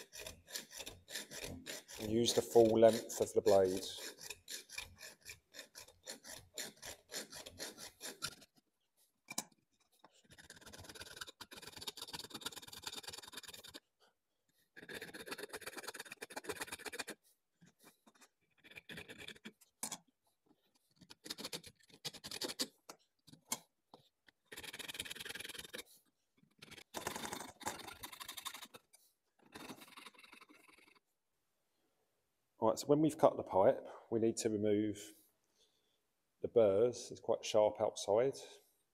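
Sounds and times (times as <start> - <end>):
hacksaw sawing copper pipe: 0.0 - 8.6, 10.2 - 13.9, 14.7 - 17.2, 17.8 - 20.0, 20.9 - 23.6, 24.5 - 30.0.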